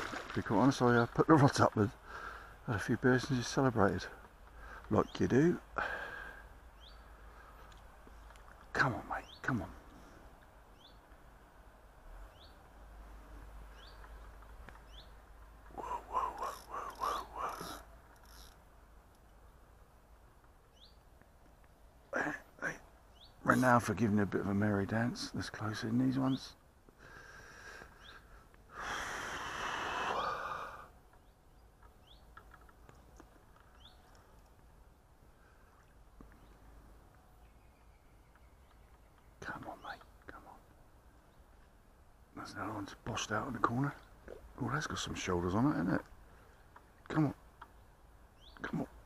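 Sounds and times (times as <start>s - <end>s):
low steady background hiss: 0.0s - 49.0s
bird chirping faintly: 6.7s - 11.3s, 20.6s - 21.2s, 35.4s - 41.7s
person exhaling heavily: 28.7s - 30.9s.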